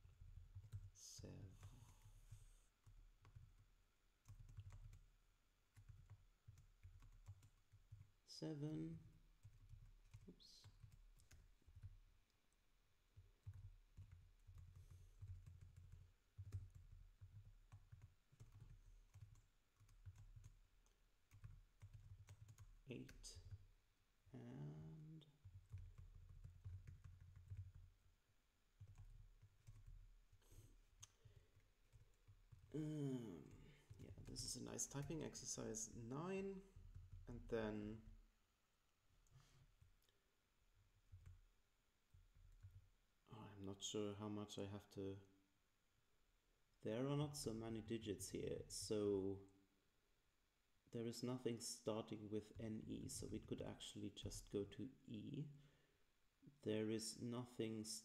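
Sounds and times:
typing on computer keyboard: 0:00.0 - 0:08.2, 0:09.1 - 0:12.0, 0:13.2 - 0:23.6, 0:25.0 - 0:28.0, 0:28.7 - 0:35.8, 0:36.8 - 0:38.2, 0:41.0 - 0:41.5, 0:42.1 - 0:42.8.

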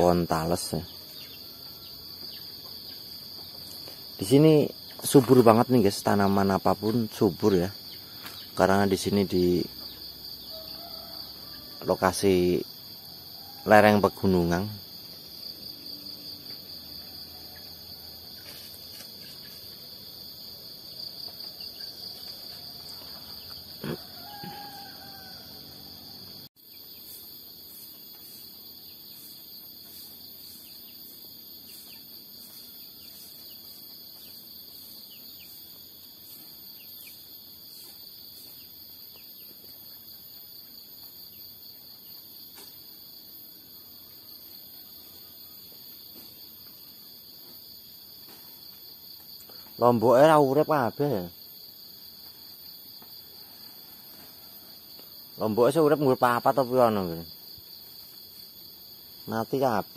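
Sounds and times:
distant rooster crowing: 0:00.0 - 0:02.8, 0:09.3 - 0:14.9, 0:21.3 - 0:26.5
high-pitched insect chorus: 0:00.0 - 0:59.9.

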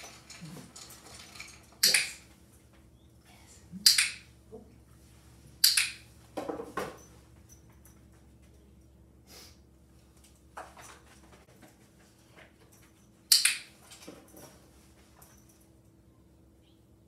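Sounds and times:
training clicker clicks: 0:03.8 - 0:04.2, 0:05.6 - 0:06.0.

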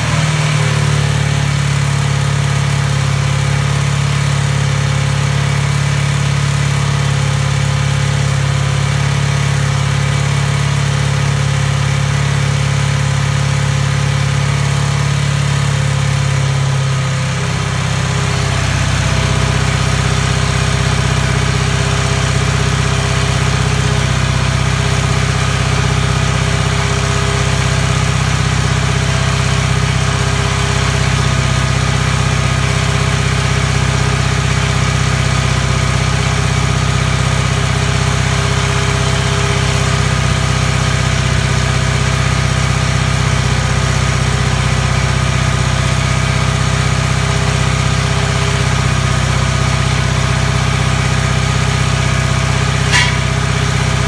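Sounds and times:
motorcycle engine idling: 0:00.0 - 0:54.0.

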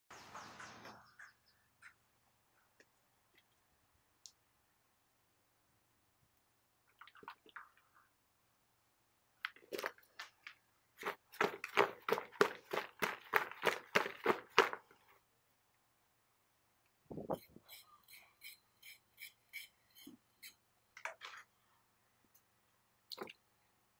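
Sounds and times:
hands mixing wet meat: 0:11.0 - 0:14.9.

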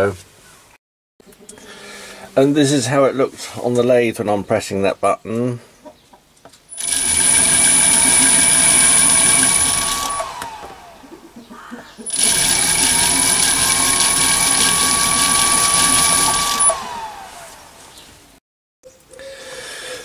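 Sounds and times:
belt and spindle running: 0:06.7 - 0:11.0, 0:12.1 - 0:17.6
lathe motor whine: 0:06.7 - 0:11.0, 0:12.1 - 0:17.8.

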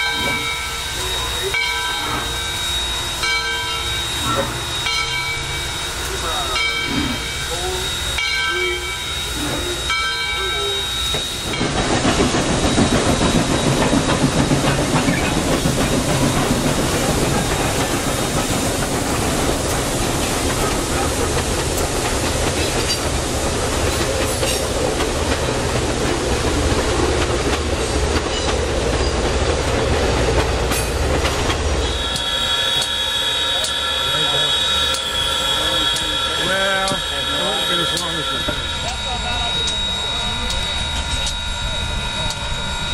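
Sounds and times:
steam locomotive whistle: 0:00.0 - 0:11.8, 0:31.8 - 0:42.9
train rumbling over rails: 0:00.0 - 0:42.9.

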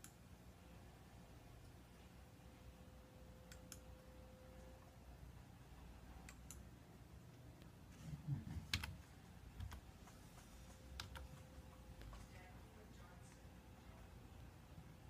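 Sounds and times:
computer mouse clicking: 0:03.5 - 0:03.9, 0:06.2 - 0:06.7, 0:08.6 - 0:12.4.

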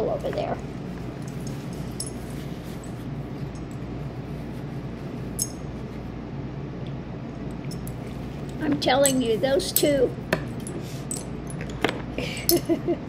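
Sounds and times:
low room hum: 0:00.0 - 0:13.0
light metallic clink: 0:05.4 - 0:05.6.

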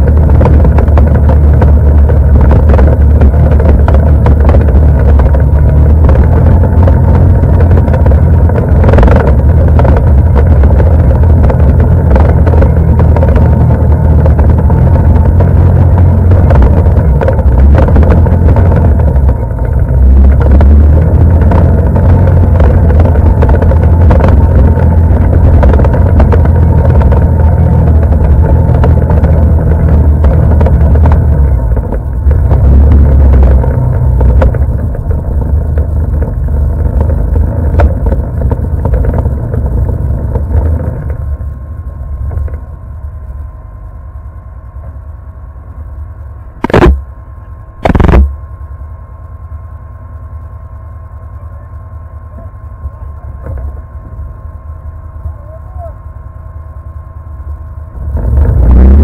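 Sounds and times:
knocks and rattles: 0:00.0 - 0:41.3
atv engine drone: 0:00.0 - 0:59.0.

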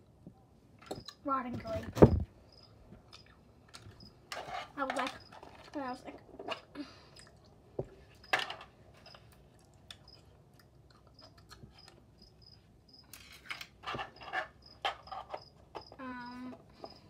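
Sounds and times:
insect chirping: 0:02.4 - 0:03.3, 0:04.0 - 0:04.2, 0:05.0 - 0:05.5, 0:11.2 - 0:13.1, 0:14.1 - 0:17.0
crackling handling noises: 0:13.0 - 0:17.0.

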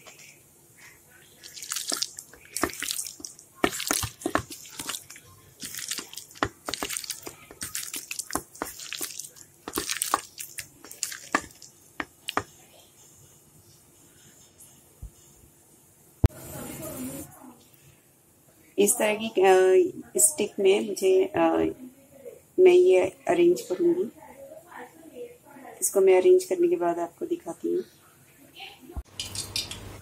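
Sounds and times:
hand mixing wet food in bowl: 0:01.2 - 0:12.7.

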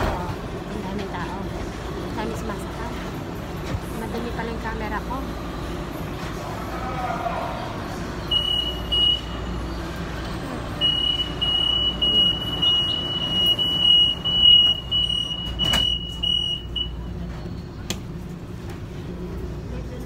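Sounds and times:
low train rumble: 0:00.0 - 0:20.0
door warning buzzer beeps: 0:08.3 - 0:09.3, 0:10.8 - 0:17.0.

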